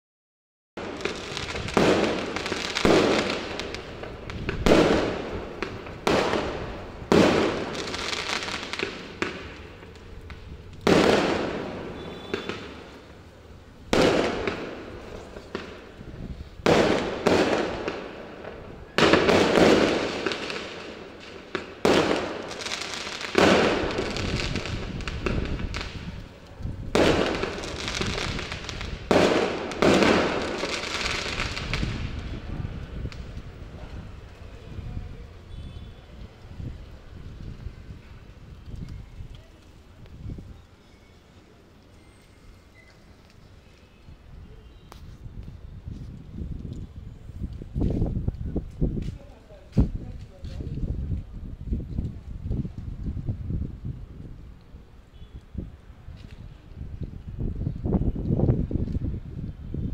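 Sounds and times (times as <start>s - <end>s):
fireworks exploding: 0.8s - 40.9s.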